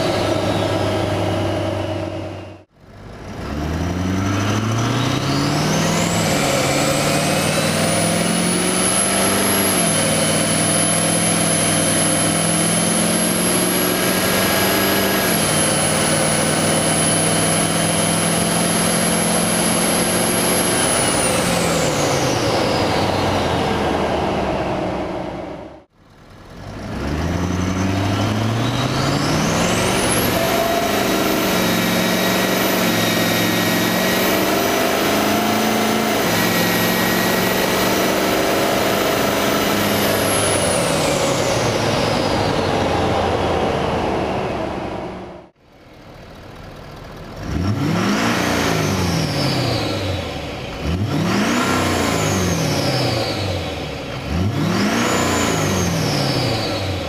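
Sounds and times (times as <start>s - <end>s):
engine revving in neutral: 0.0s - 45.6s, 47.0s - 57.0s
diesel engine accelerating: 0.0s - 57.0s
turbo whistle: 29.8s - 33.5s.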